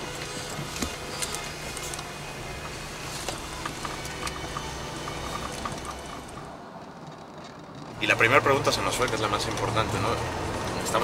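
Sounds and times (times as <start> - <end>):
vehicle road and engine rumble: 0.0 - 11.0.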